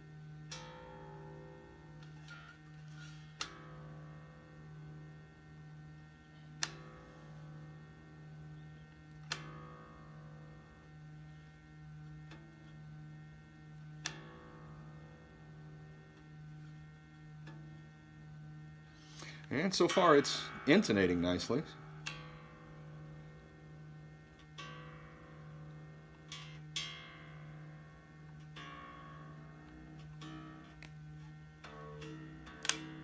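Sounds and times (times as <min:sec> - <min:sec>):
low pulsing hum: 0:00.0 - 0:33.0
bass guitar strings plucked: 0:19.2 - 0:33.0.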